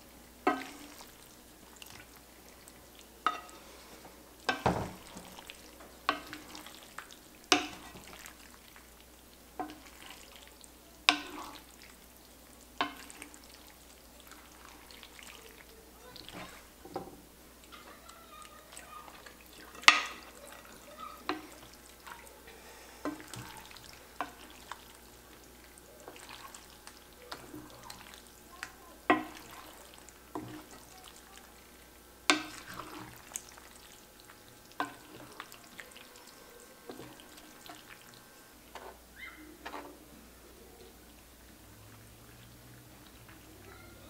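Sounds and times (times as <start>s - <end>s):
spoon stirring thick sauce: 0.5s - 40.0s
spoon knocking against a pot: 19.8s - 20.3s, 29.1s - 29.5s.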